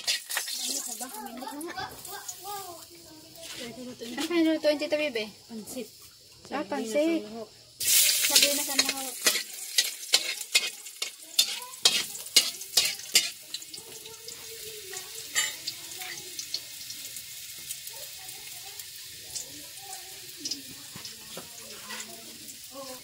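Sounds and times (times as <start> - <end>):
metal spatula scraping a wok: 0.0 - 0.6, 7.8 - 13.4
food sizzling: 0.0 - 23.0.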